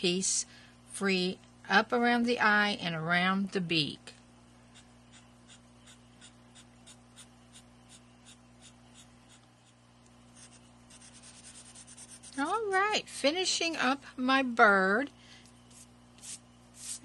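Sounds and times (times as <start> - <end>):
marker scratching on paper: 4.7 - 9.8, 10.4 - 12.8, 15.7 - 17.0.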